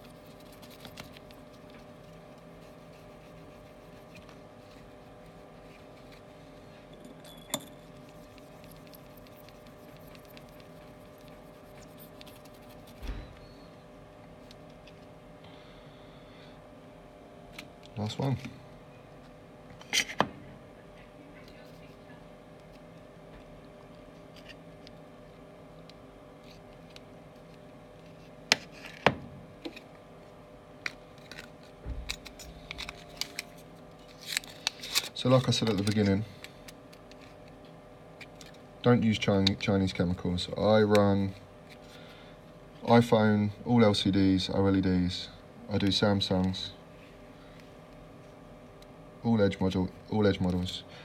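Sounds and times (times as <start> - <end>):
electrical hum: 0.0 - 51.0
sponge rubbing on glass: 1.6 - 4.2.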